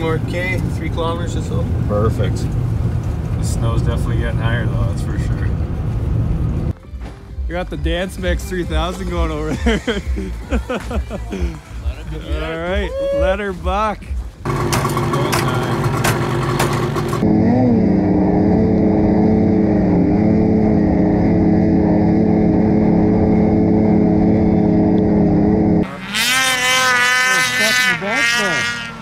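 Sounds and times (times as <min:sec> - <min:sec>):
snowmobile engine running: 0:14.4 - 0:29.0.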